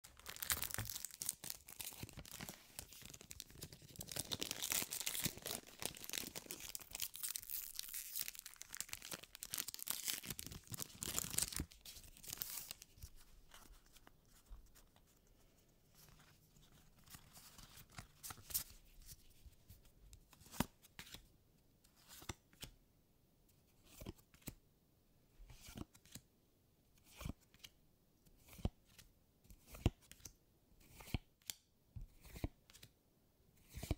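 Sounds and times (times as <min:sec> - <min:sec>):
foil wrapper crinkling and tearing: 0:00.0 - 0:12.8
cards being handled and slid: 0:11.1 - 0:21.3, 0:21.9 - 0:22.7, 0:23.8 - 0:24.6, 0:25.5 - 0:26.2, 0:27.0 - 0:27.7, 0:28.4 - 0:32.9, 0:33.6 - 0:33.9.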